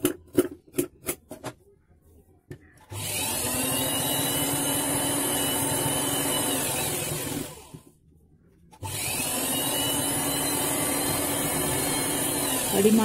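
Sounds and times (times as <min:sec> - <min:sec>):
sewing machine motor whining: 0:08.8 - 0:13.0.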